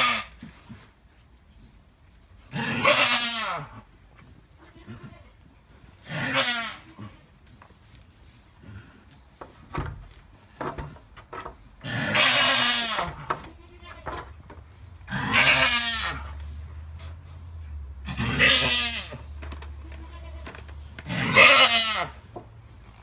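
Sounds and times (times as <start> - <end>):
goat bleating: 0.0 - 0.5, 2.5 - 3.9, 4.6 - 5.4, 6.0 - 7.3, 11.8 - 14.4, 15.1 - 16.4, 18.0 - 22.3.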